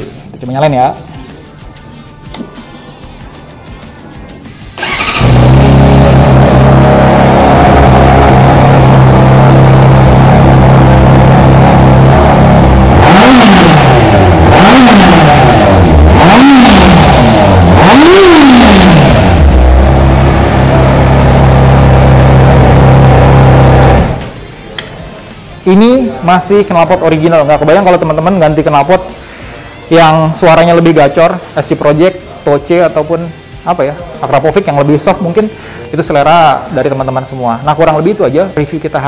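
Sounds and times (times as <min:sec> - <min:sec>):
motorcycle engine revving: 0:04.8 - 0:24.4
motorcycle engine starting: 0:04.8 - 0:24.4.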